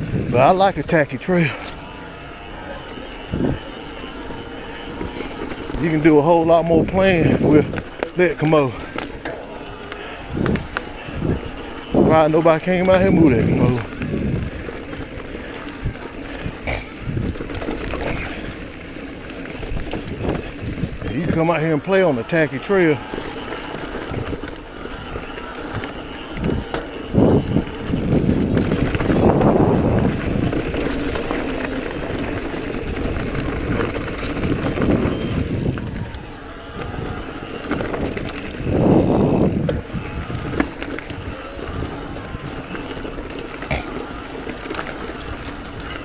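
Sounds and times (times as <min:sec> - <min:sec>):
wind rushing on microphone: 0:00.0 - 0:01.6, 0:03.2 - 0:03.7, 0:05.8 - 0:07.9, 0:10.2 - 0:21.4, 0:26.3 - 0:43.0
bike clicking and rattling: 0:00.0 - 0:46.0
knobby tyres on dirt trail: 0:00.0 - 0:46.0.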